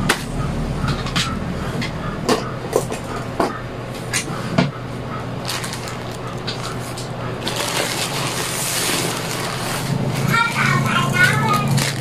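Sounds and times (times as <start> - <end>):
low background hum: 0.0 - 12.0
plastic bag crinkling: 5.3 - 10.3, 11.6 - 12.0.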